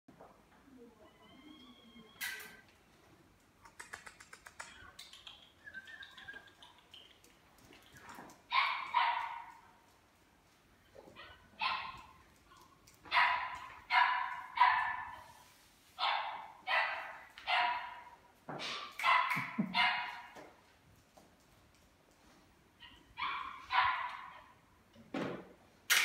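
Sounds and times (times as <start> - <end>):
puppy barking: 8.5 - 9.6, 11.2 - 12.2, 13.1 - 15.3, 16.0 - 18.2, 19.0 - 20.4, 22.8 - 24.6.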